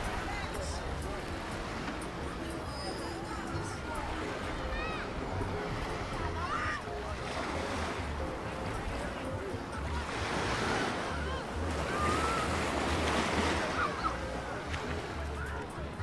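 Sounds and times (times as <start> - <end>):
small waves breaking on sand: 0.0 - 15.9.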